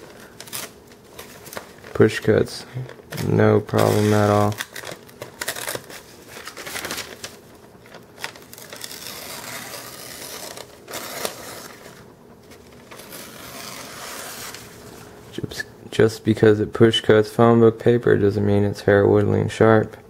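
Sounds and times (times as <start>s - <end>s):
paper rustling and crinkling: 0.0s - 15.1s
knife cutting paper: 8.2s - 12.0s, 12.9s - 14.7s.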